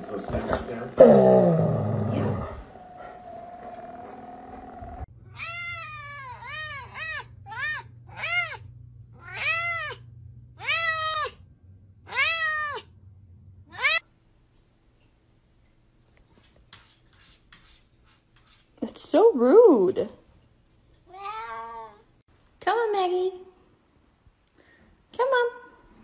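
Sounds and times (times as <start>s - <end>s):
cat meowing: 5.3s - 8.6s, 9.2s - 10.0s, 12.1s - 12.9s, 13.7s - 14.0s.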